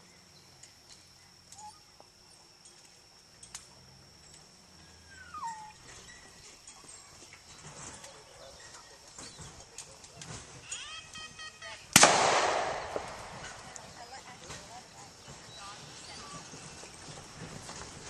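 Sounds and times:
open field ambience: 0.0 - 18.0
dog whining: 4.8 - 6.3.

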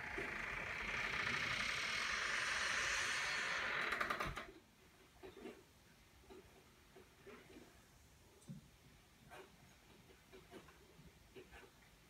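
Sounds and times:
outdoor hiss: 0.0 - 4.5
door hinges creaking: 0.0 - 4.6.

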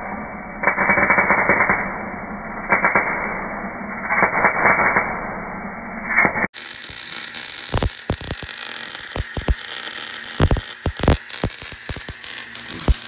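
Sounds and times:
welder arc crackling with pops: 6.2 - 13.0.

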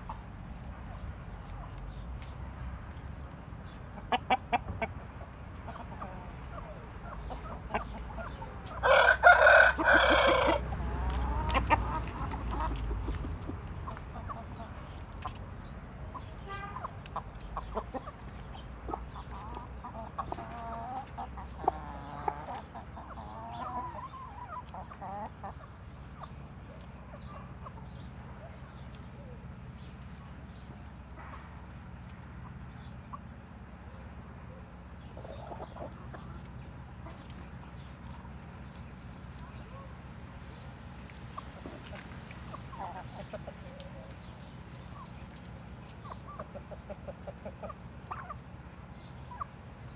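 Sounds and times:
rooster clucking: 3.4 - 29.4, 41.2 - 48.5
rooster crowing: 8.8 - 11.0.

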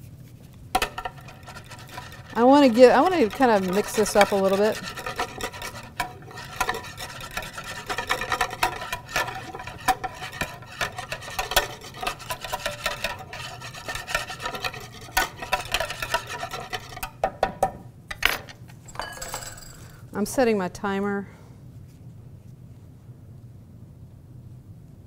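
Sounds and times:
whisk scraping and ticking on bowl: 0.8 - 17.2.

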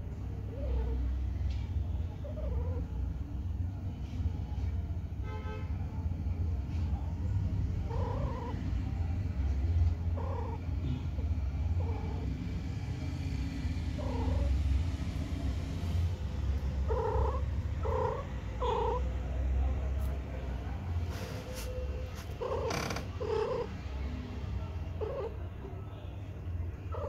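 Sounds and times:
cat purring: 0.5 - 1.1, 2.2 - 3.0, 7.8 - 19.6, 21.1 - 24.0, 24.9 - 25.4
cat low cries: 14.0 - 14.6, 16.8 - 19.1, 22.4 - 23.7.

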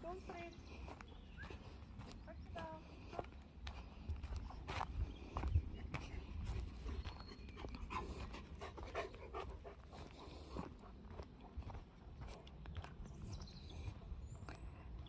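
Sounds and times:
footsteps crunching on a path: 0.0 - 15.0
dog panting: 4.2 - 12.9.

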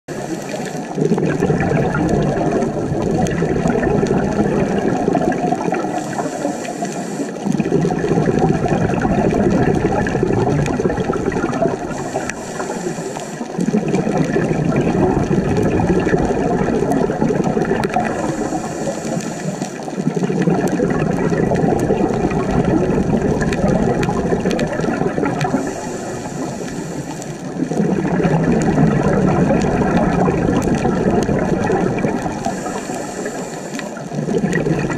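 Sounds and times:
gurgling exhaled bubbles: 0.1 - 34.9
regulator hissing inhalation: 5.8 - 7.5, 11.9 - 13.6, 18.1 - 20.0, 25.5 - 27.5, 32.4 - 34.0.

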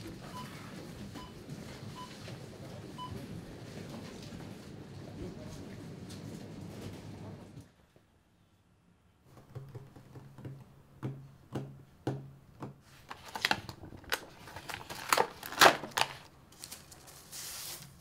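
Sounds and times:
plastic box clicking and crackling: 13.0 - 16.3.

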